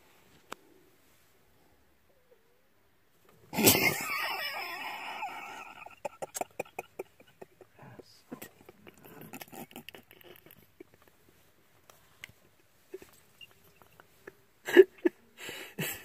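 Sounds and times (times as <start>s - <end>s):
person laughing: 3.6s - 11.1s, 12.9s - 15.2s.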